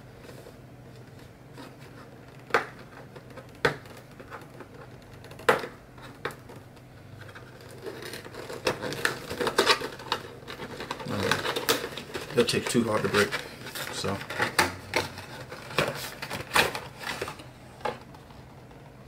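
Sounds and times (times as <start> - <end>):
cardboard packaging clicks and taps: 2.4 - 6.4
cardboard rustling: 7.2 - 18.7.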